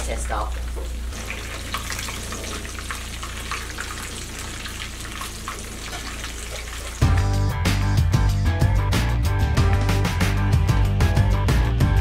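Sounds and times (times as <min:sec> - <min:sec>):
fish sizzling in frying pan: 0:00.3 - 0:07.2
music with heavy bass beat: 0:07.0 - 0:12.0.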